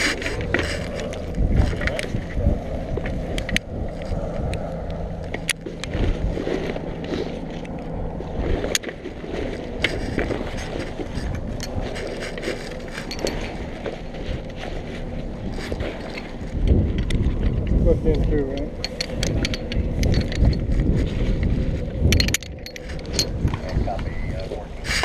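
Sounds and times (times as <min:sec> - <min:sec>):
helicopter drone: 0:00.0 - 0:25.0
wind rushing over microphone: 0:00.0 - 0:25.0
metallic clicks of buckles: 0:09.8 - 0:13.6, 0:18.5 - 0:20.9, 0:22.1 - 0:23.8.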